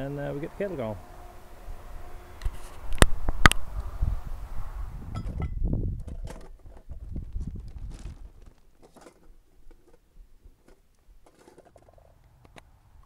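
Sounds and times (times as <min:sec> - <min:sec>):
rustling of gear: 0:06.0 - 0:12.2.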